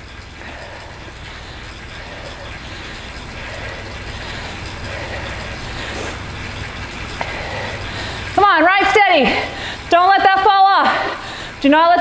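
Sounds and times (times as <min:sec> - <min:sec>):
bike trainer whirring: 0:00.0 - 0:12.0.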